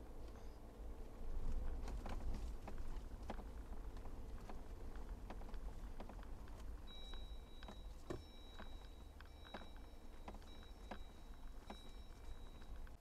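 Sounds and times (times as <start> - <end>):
low steady rumble: 0.0 - 13.0
high electronic beep: 6.9 - 12.8.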